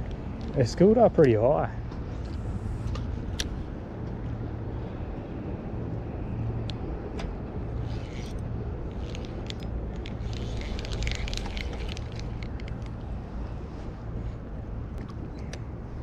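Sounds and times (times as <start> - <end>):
fishing reel handle clicking: 7.8 - 13.0.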